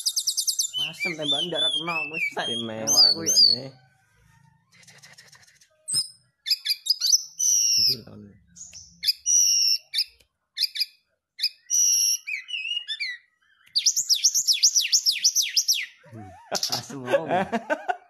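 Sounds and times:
bird singing whistled phrases: 0:00.0 - 0:03.8, 0:05.9 - 0:16.0.

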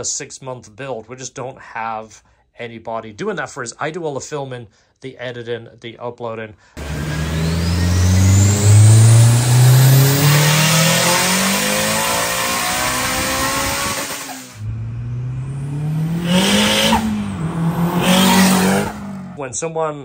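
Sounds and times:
car engine accelerating: 0:06.8 - 0:19.4
high rising whine: 0:06.8 - 0:19.4.

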